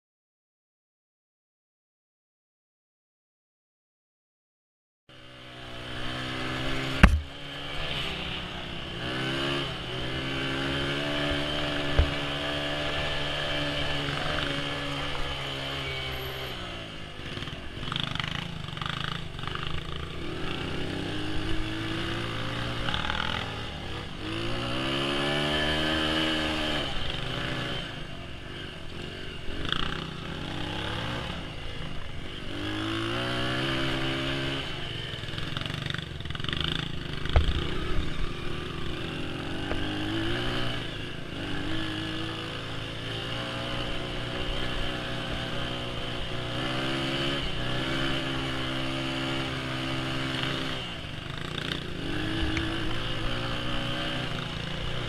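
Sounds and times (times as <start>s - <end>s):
dirt bike engine revving: 5.1s - 55.0s
sharp knock: 7.0s - 7.4s.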